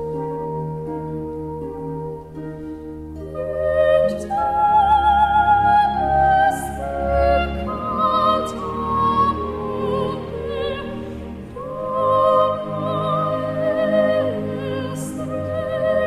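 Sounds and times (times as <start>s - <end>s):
classical music: 0.0s - 16.0s
operatic singing voice: 3.4s - 16.0s.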